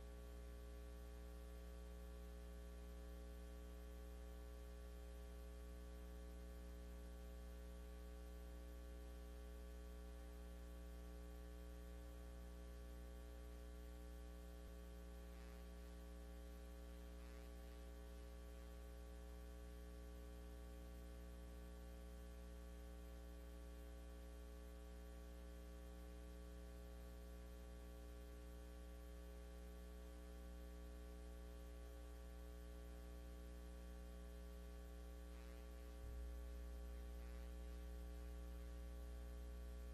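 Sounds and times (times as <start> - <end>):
faint electrical mains hum: 0.0 - 39.9.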